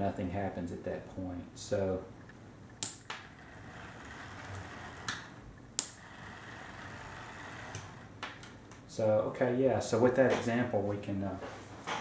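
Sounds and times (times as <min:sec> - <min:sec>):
model locomotive motor whirring: 0:03.4 - 0:08.1
slide switch clicking: 0:05.1 - 0:06.0.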